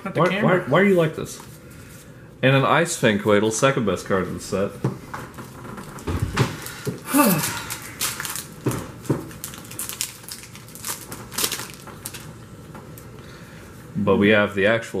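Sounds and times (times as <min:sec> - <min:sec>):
foil wrapper crinkling and tearing: 0:05.8 - 0:13.1.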